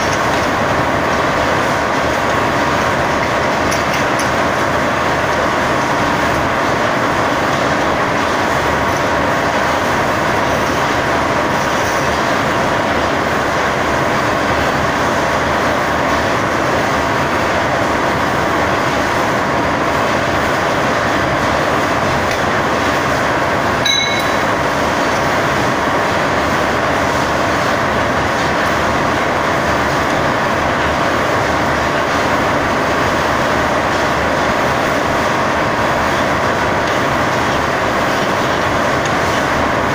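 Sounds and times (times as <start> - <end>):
wire drawing machinery drone: 23.7 - 26.4
short high tone: 23.8 - 24.6.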